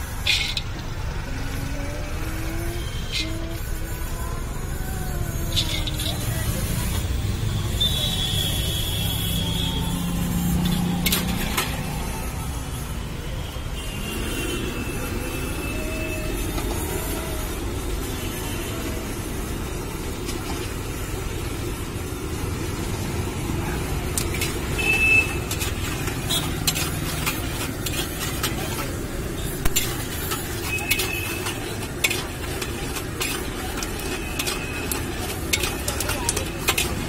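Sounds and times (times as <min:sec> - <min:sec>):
peanuts frying in oil: 0:00.0 - 0:12.6, 0:15.2 - 0:37.0
metal spatula scraping pan: 0:00.1 - 0:00.8, 0:02.8 - 0:03.5, 0:05.5 - 0:07.0, 0:24.2 - 0:37.0
metal squeaking on metal: 0:00.1 - 0:00.8, 0:02.5 - 0:06.8, 0:24.8 - 0:37.0.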